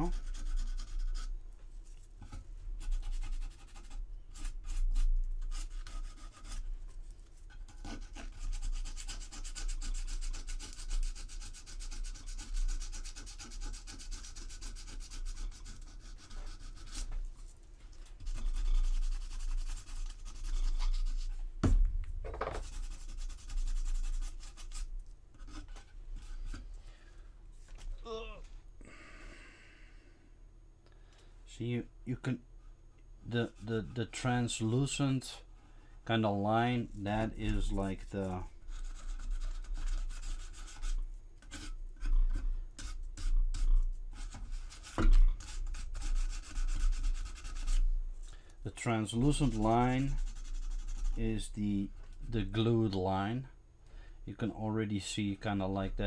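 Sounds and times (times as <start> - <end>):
sandpaper rubbing: 0.0 - 1.3, 2.8 - 6.6, 7.8 - 17.1, 18.2 - 21.4, 22.6 - 25.6, 37.4 - 41.7, 42.8 - 47.8, 49.0 - 51.5
steady low hum: 0.0 - 56.0.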